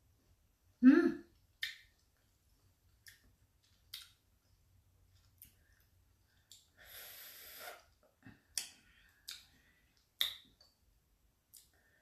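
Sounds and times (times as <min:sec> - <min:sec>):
person breathing: 0:06.7 - 0:07.9
mouth clicks: 0:10.2 - 0:10.7.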